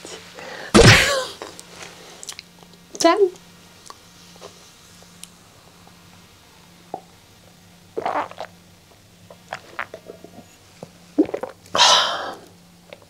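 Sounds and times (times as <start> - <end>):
woman gulping a drink: 8.0 - 8.6, 11.2 - 11.6
woman exhaling breathily: 11.8 - 12.5.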